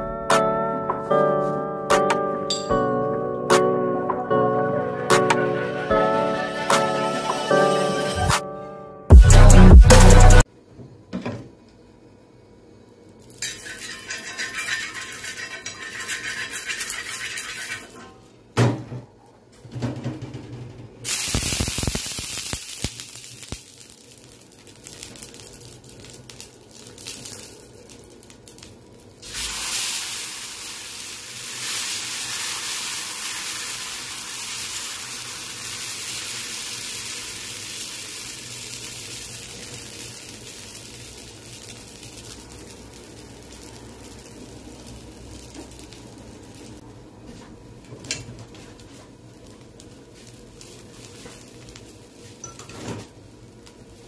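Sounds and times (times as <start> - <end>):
batter sizzling on hot pan: 13.2 - 18.0, 21.1 - 46.8, 48.0 - 54.0
water hissing on hot pan: 13.5 - 18.0, 21.1 - 46.8, 49.5 - 52.4.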